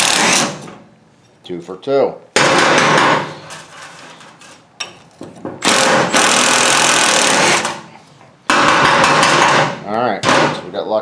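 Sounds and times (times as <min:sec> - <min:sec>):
impact wrench hammering on bolt: 0:02.4 - 0:03.3, 0:05.6 - 0:07.8, 0:08.5 - 0:10.6.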